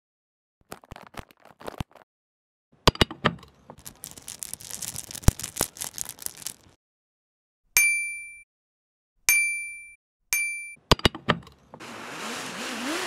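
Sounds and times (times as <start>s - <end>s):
packaging crinkling: 0.6s - 2.0s, 3.8s - 6.8s.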